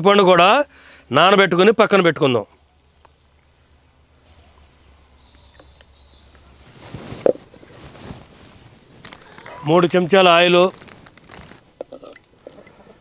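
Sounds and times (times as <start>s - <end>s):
faint outdoor background: 0.0s - 13.0s
clay pot scraping and knocking: 10.8s - 13.0s.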